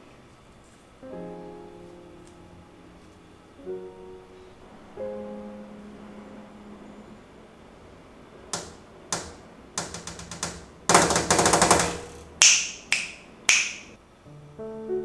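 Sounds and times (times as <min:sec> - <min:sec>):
soft background music: 0:00.6 - 0:08.4, 0:14.0 - 0:15.0
fingernails clicking on plastic: 0:08.6 - 0:13.6.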